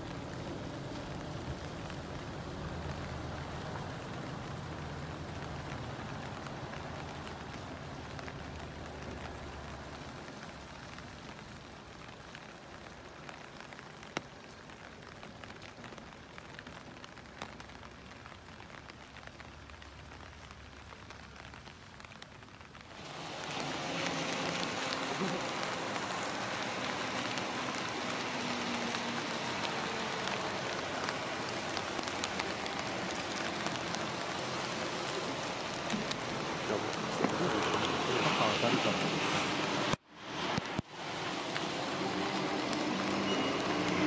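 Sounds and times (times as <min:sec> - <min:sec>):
rain on wet pavement: 0:00.0 - 0:44.0.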